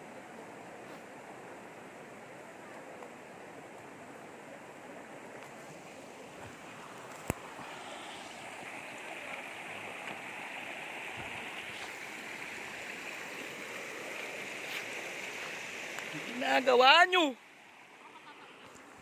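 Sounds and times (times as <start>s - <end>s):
river rushing over rocks: 0.0s - 19.0s.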